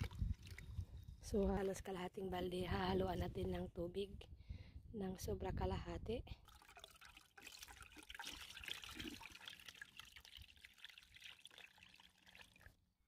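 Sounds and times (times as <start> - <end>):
liquid pouring through a strainer: 6.4 - 12.8.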